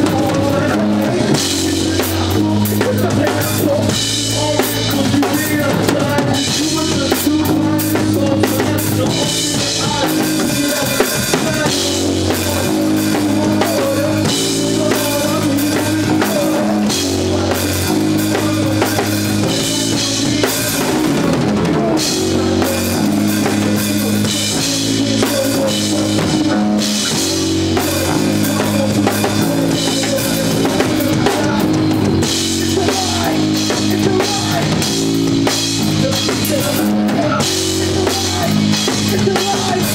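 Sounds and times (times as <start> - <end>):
drum kit beat: 0.0 - 39.9
live band playing: 0.0 - 39.9.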